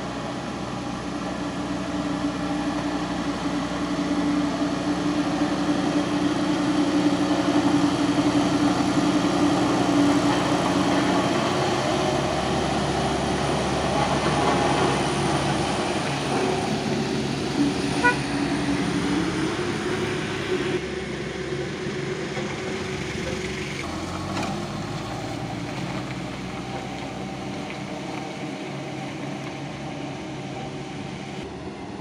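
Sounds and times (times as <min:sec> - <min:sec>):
pickup truck driving past: 0:00.0 - 0:32.0
road roller diesel engine running: 0:00.0 - 0:32.0
short vehicle horn beep: 0:18.0 - 0:18.3.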